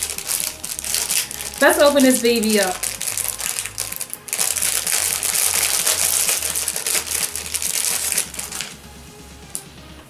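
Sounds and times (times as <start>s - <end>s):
plastic packaging crinkling: 0.0s - 8.8s.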